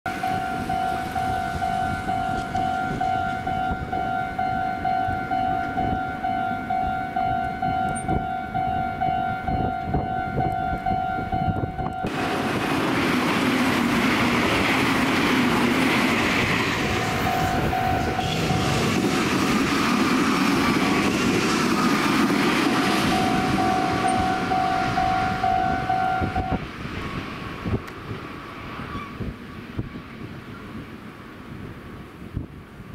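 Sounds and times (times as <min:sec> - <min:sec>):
level crossing bell ringing: 0:00.1 - 0:12.2, 0:17.2 - 0:18.2, 0:23.0 - 0:26.5
train wheel and rail noise: 0:00.1 - 0:32.9.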